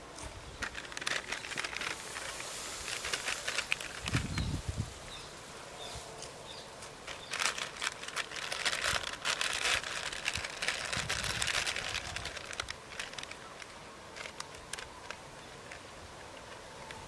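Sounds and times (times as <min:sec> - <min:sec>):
chip packet crinkling: 0:00.6 - 0:04.6, 0:07.0 - 0:15.8.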